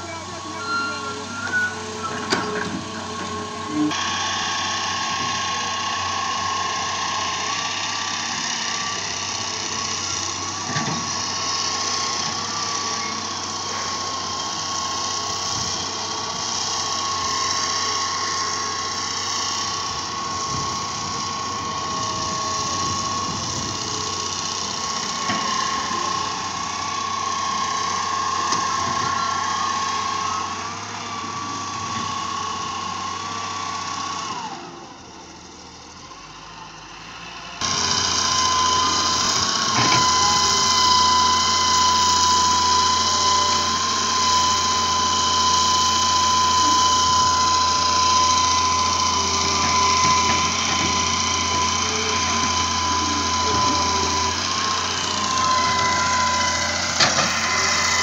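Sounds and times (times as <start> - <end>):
excavator digging sand: 0.0 - 35.2, 37.6 - 58.0
diesel engines running: 0.0 - 58.0.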